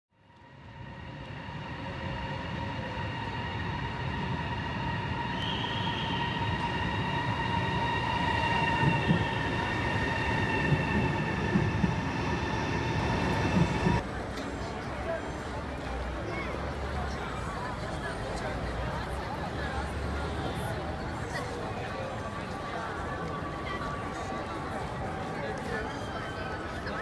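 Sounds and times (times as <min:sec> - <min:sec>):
electric train rumble and whine: 0:00.2 - 0:14.0
train knocks: 0:07.8 - 0:14.0.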